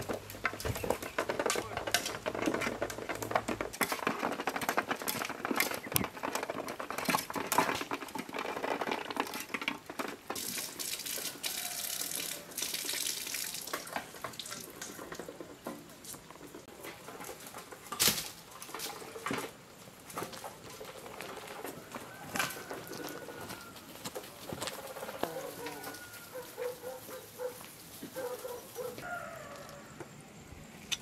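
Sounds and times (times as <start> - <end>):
tap water running through sieve: 9.2 - 15.6
ducks dabbling bills in water: 10.2 - 15.3.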